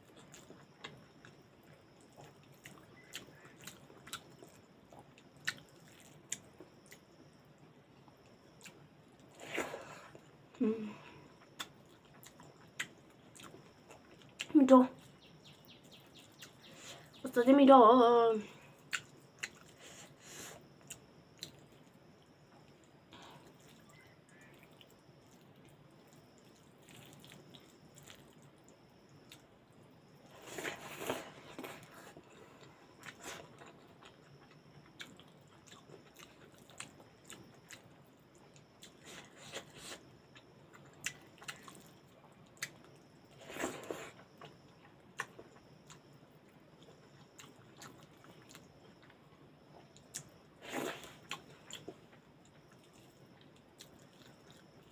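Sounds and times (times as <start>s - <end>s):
person chewing: 0.0s - 7.0s, 11.4s - 14.5s, 18.8s - 21.9s, 24.6s - 28.4s, 30.2s - 46.0s, 46.8s - 49.2s, 49.8s - 54.9s.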